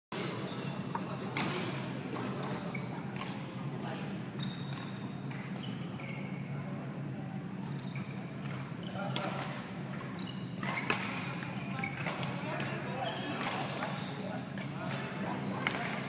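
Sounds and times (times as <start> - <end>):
short high squeaks: 9.9 - 10.9.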